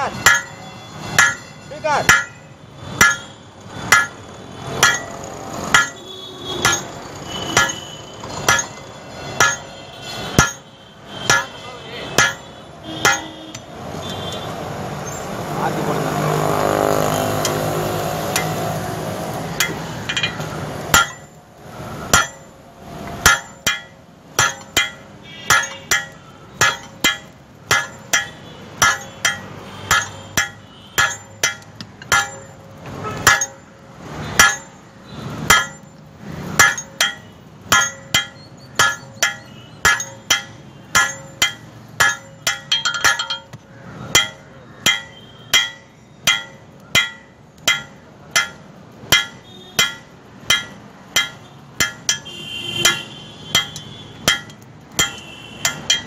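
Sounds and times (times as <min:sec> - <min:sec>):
hammer blows on anvil: 0:36.6 - 0:56.0.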